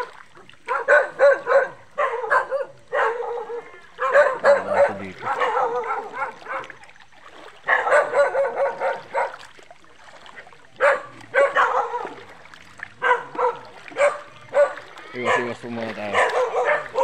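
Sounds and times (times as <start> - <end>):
dog barking: 0.6 - 6.8, 7.6 - 9.4, 10.8 - 12.3, 13.0 - 17.0.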